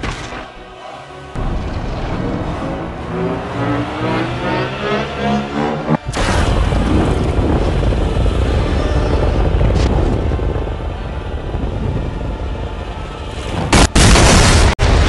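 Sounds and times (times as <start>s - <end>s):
loud explosion blast: 1.4s - 3.4s, 6.1s - 12.3s, 13.5s - 15.0s
loud rumble of energy beams: 1.4s - 13.0s.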